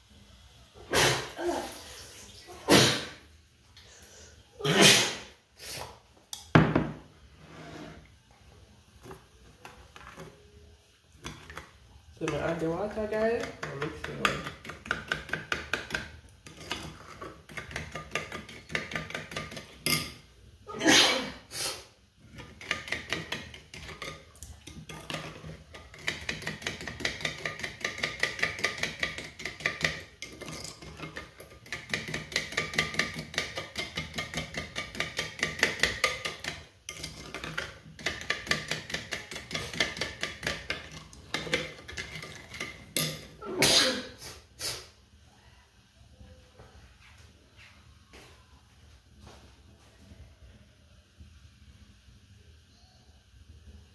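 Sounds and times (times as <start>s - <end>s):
spoon stirring in ceramic bowl: 9.0s - 20.2s, 22.2s - 43.4s.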